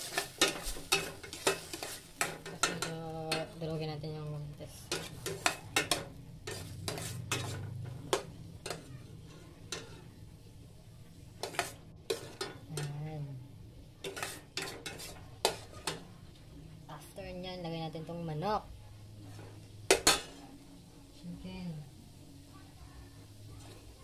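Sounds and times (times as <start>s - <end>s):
metal spoon scraping a pot: 0.0s - 3.6s, 4.7s - 10.2s, 11.4s - 13.2s, 14.0s - 16.0s
food sizzling in oil: 0.0s - 24.0s.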